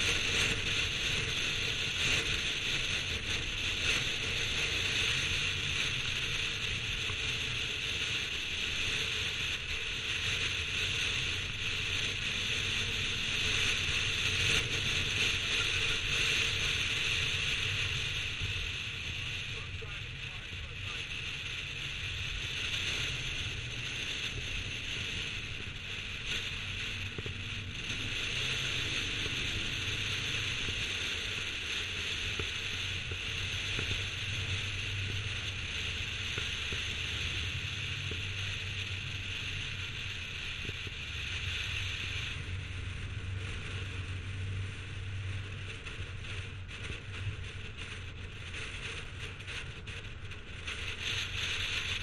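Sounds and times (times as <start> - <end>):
low engine drone: 0.0 - 52.0
wind rush and tyre noise: 0.0 - 52.0.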